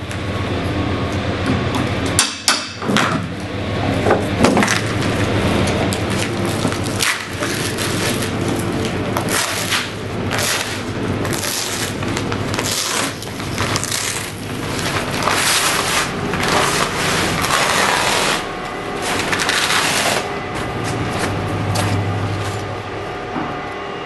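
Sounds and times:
low steady hum: 0.0 - 24.0
plastic crackling and rustling: 6.0 - 20.3.

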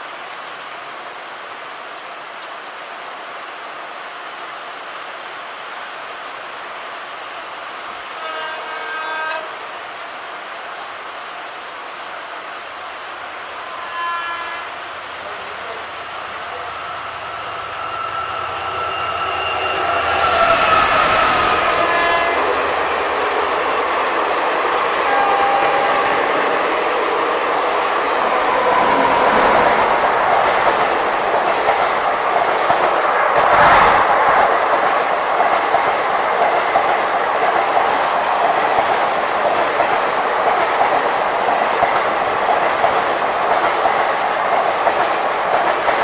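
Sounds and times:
heavy rain falling: 0.0 - 46.0
locomotive horn: 8.1 - 9.7, 13.6 - 23.9, 24.7 - 27.2
train coaches clattering past: 13.7 - 46.0.

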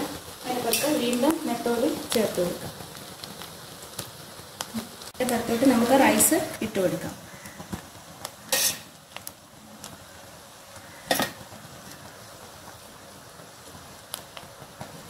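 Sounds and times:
faint steady hiss: 0.0 - 15.0
spoon scraping rice in pot: 8.5 - 8.9.

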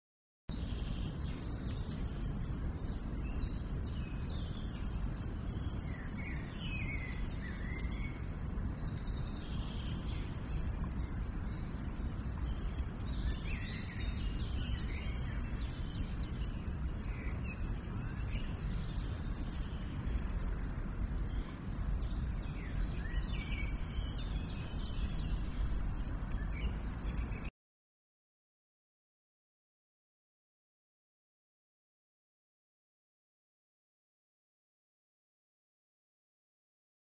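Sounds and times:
birds chirping: 0.5 - 27.5
low noisy background: 0.5 - 27.5.

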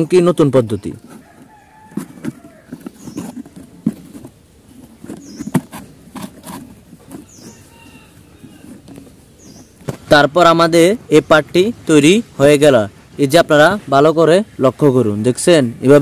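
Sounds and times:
faint bird calls: 0.7 - 3.7, 5.0 - 6.4, 7.0 - 10.0
hands handling cardboard box: 0.7 - 10.2.

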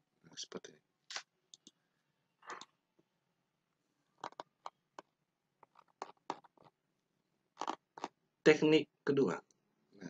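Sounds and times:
computer mouse clicks: 1.1 - 1.8.

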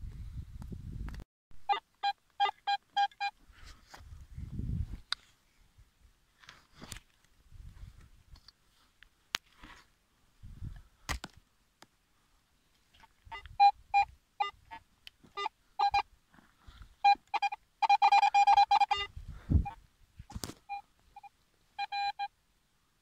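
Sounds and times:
metal detector beeps: 1.6 - 3.4, 13.3 - 16.1, 17.0 - 22.3.

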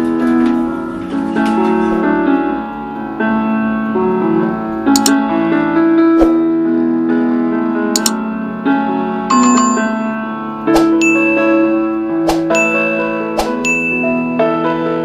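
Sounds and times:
piano music: 0.0 - 15.0
short clicks: 4.9 - 5.2, 8.0 - 8.2.

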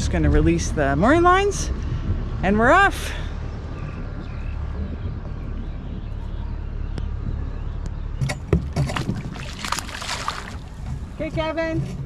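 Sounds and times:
steady low rumble: 0.0 - 11.7
sharp knocks: 8.2 - 9.7.

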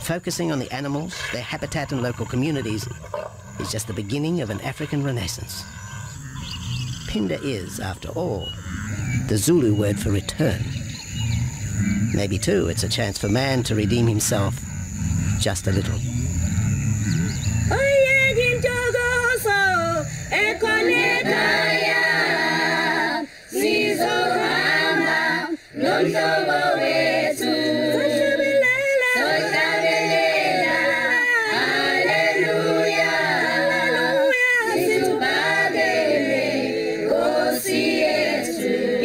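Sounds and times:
choir singing: 17.4 - 39.0.

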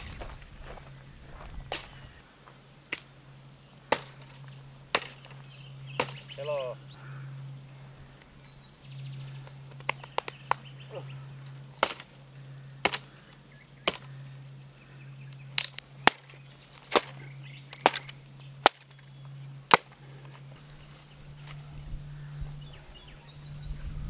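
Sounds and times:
axe chopping branches: 1.7 - 2.1, 2.8 - 3.2, 3.8 - 6.6, 9.7 - 14.2, 15.4 - 21.6.

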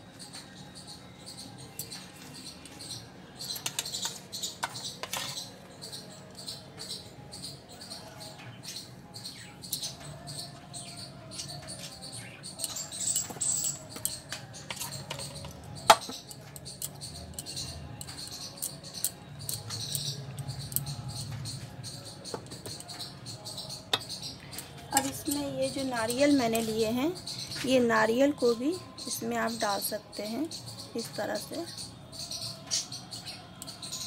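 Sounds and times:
spoon scraping and tapping paste: 12.6 - 20.9, 22.2 - 24.2.

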